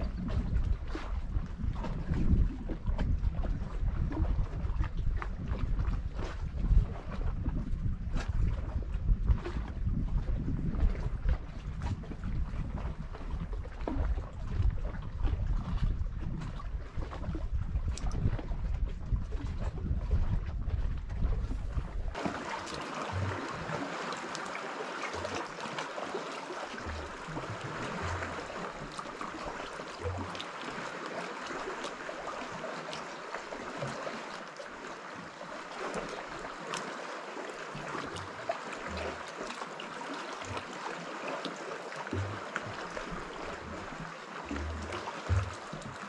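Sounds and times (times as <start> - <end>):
water ticks and splashes: 0.0 - 46.0
waves lapping among rocks: 0.0 - 46.0.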